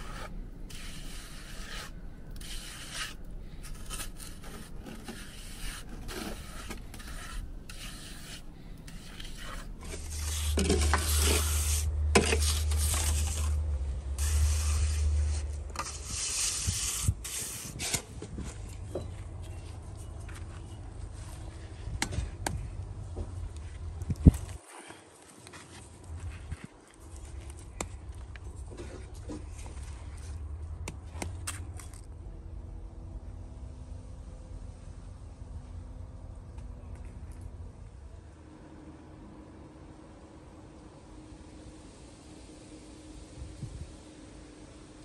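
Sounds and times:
rubbing and scraping strokes: 0:00.0 - 0:13.6, 0:14.2 - 0:18.6.

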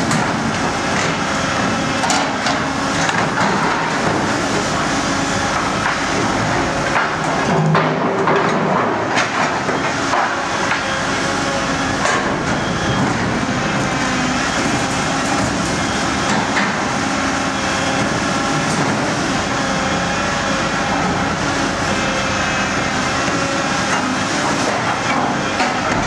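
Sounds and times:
excavator engine and hydraulics: 0:00.0 - 0:26.0
metal knocks and clanks: 0:25.6 - 0:26.0.

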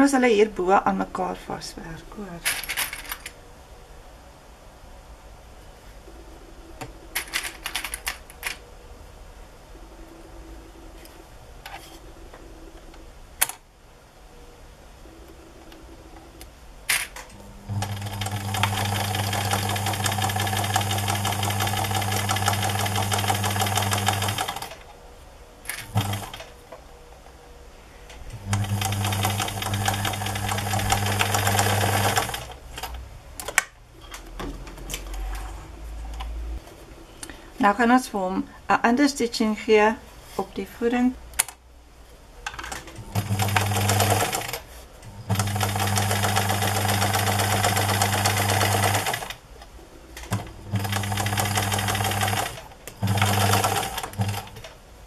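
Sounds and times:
sewing machine stitching: 0:17.7 - 0:24.8, 0:25.7 - 0:26.4, 0:28.4 - 0:32.6, 0:42.9 - 0:44.6, 0:45.3 - 0:49.4, 0:50.3 - 0:54.6.

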